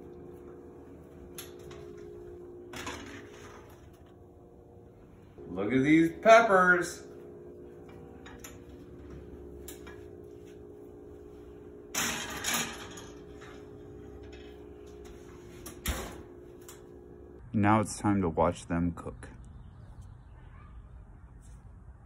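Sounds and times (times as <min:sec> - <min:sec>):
appliance hum: 0:00.0 - 0:17.6.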